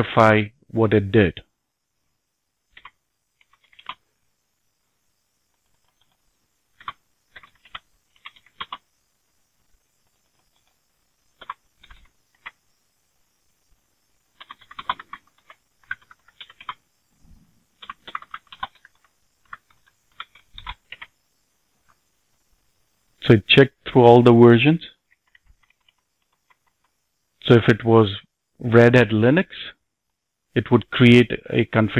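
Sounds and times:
computer keyboard typing: 2.7s - 4.0s, 5.5s - 8.9s, 10.0s - 12.6s, 14.3s - 16.8s, 17.8s - 21.2s, 25.0s - 27.0s.

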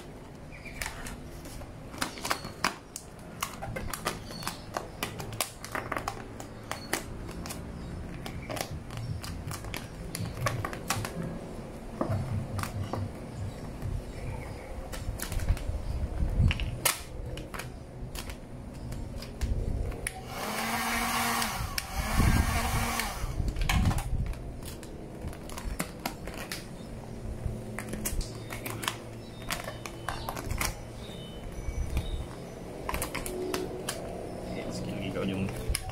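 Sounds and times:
hot-air blower running: 20.2s - 23.4s
plastic film crackling: 23.4s - 34.2s.

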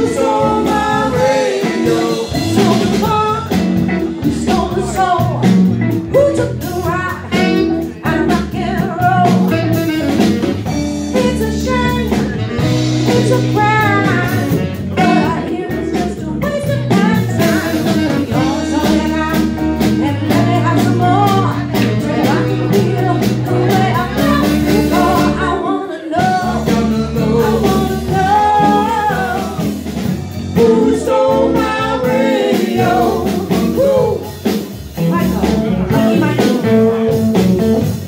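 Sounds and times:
woman singing: 0.0s - 10.1s, 11.1s - 12.4s, 13.0s - 29.8s, 30.6s - 34.3s, 35.0s - 37.2s
live blues band playing: 0.0s - 38.0s.

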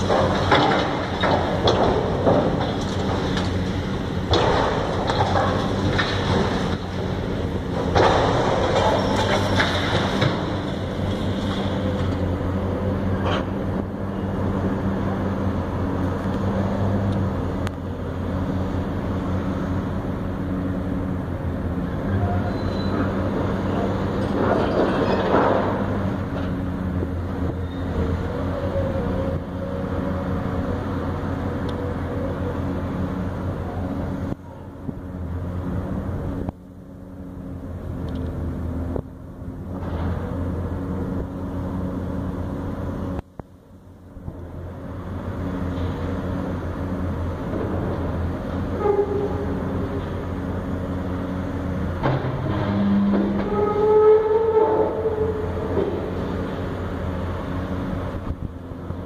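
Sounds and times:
loud rough noise: 0.0s - 17.5s, 46.0s - 58.4s
diesel engine droning: 0.0s - 59.0s.

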